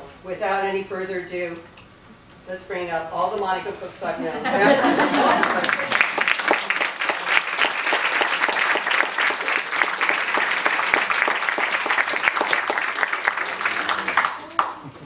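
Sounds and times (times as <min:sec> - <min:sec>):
audience applauding: 0:04.9 - 0:15.0.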